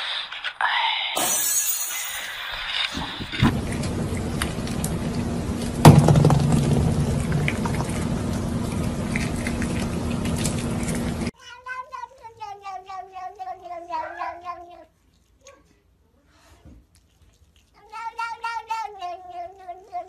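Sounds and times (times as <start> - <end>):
low hum: 3.0 - 11.3
cat yowling: 11.4 - 14.8.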